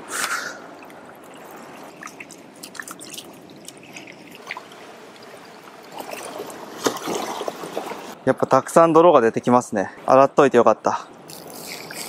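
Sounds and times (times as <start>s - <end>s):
water splashing and dripping: 0.6s - 8.2s.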